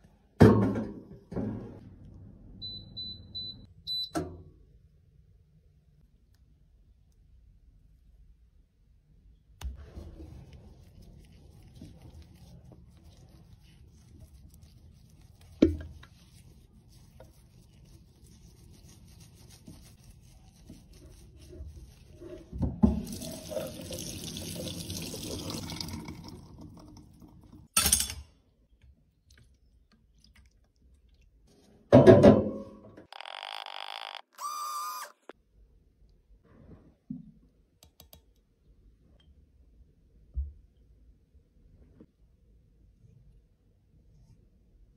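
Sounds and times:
wet sponge squishing: 9.8 - 23.6
tap water running: 22.2 - 27.7.

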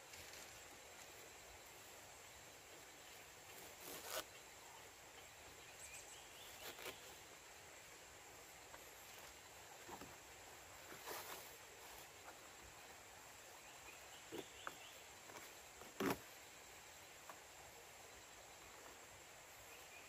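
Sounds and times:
faint high hiss: 0.0 - 20.0
rope rustling and scraping: 3.4 - 4.4, 6.4 - 7.3, 8.6 - 12.8, 14.3 - 16.4.

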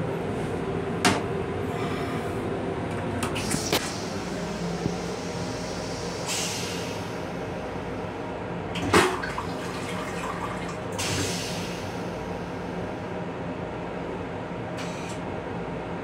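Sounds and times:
railcar steady hum: 0.0 - 16.0
toilet rinse water hissing: 8.8 - 11.9.

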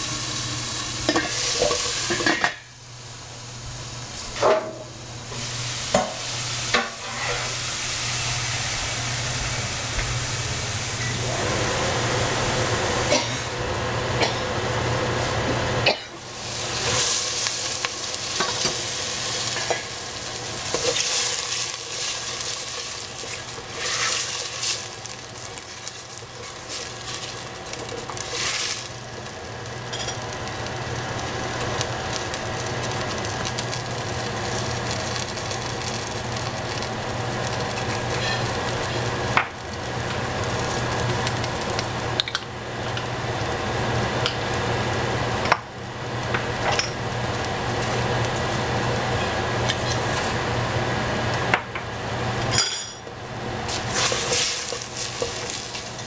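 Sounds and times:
vegetables sizzling in pan: 0.0 - 56.0.

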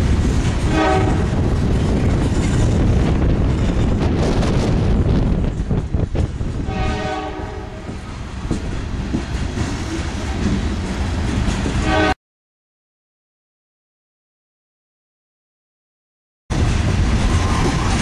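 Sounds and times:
train cars rumbling past: 0.0 - 12.2, 16.5 - 18.0.

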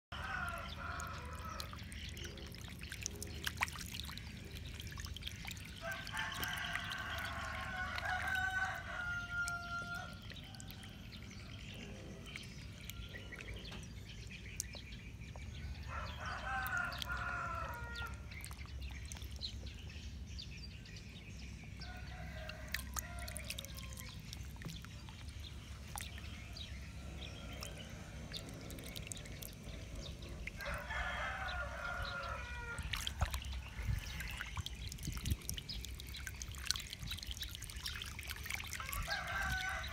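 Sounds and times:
water splashing and trickling: 0.0 - 39.9
rooster crowing: 5.9 - 10.1, 30.6 - 32.8, 39.0 - 39.9.

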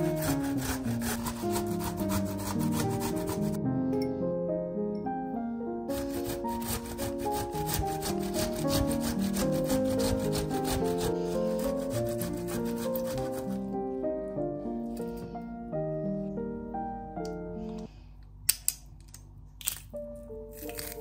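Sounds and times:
tomato rasping on grater: 0.0 - 3.6, 5.9 - 13.7
background music: 0.0 - 17.9, 19.6 - 21.0.

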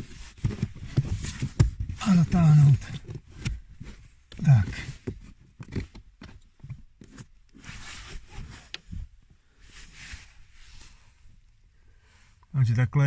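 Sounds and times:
short rustles: 0.0 - 11.3
light plastic clicks and knocks: 4.3 - 7.3.

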